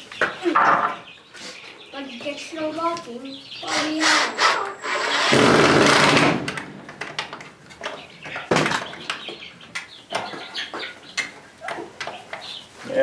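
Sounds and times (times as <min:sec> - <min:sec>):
cordless drill driving screw: 0:04.0 - 0:06.2.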